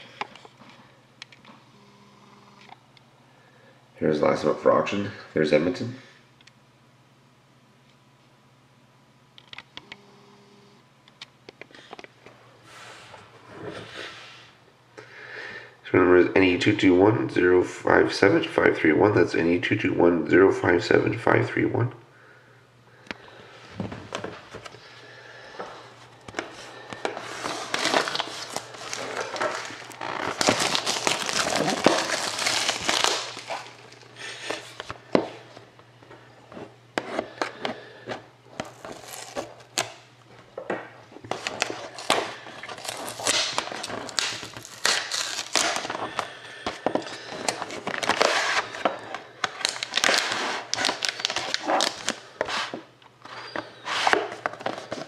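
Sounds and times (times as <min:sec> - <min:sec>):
plastic wrap crinkling and tearing: 0:27.0 - 0:34.9, 0:38.6 - 0:40.0, 0:41.2 - 0:52.7.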